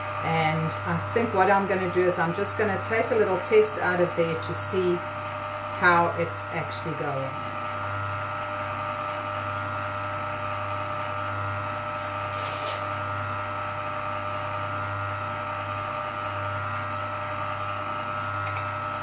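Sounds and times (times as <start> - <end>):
ice cream maker motor humming: 0.0 - 19.0.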